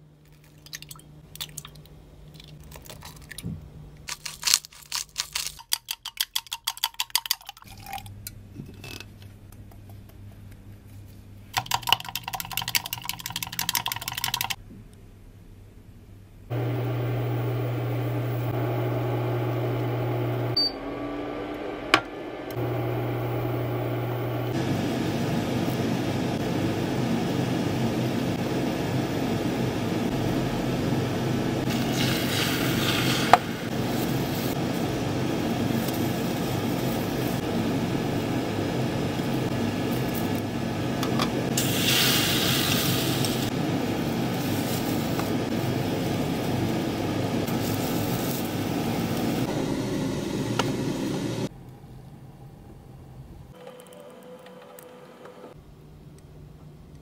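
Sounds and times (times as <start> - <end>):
mechanical hum and whir: 14.5 - 41.7, 42.6 - 57.0
egg mixture sizzling in pan: 31.6 - 40.8, 41.5 - 49.4.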